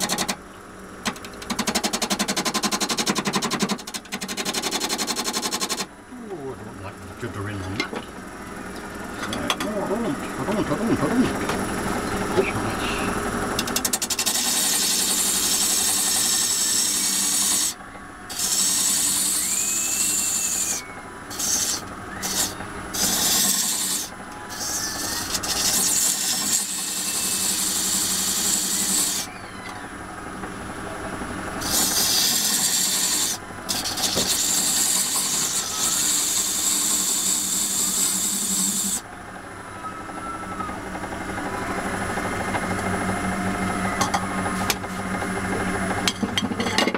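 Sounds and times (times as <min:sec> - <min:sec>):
lathe motor hum: 0:00.0 - 0:46.5
tool scraping spinning wood: 0:01.0 - 0:05.9, 0:06.6 - 0:29.3, 0:31.6 - 0:39.1.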